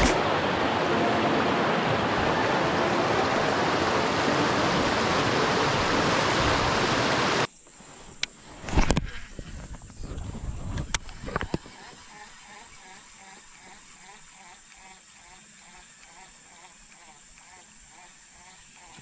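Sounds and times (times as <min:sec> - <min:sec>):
river water rushing over rocks: 0:00.0 - 0:07.5.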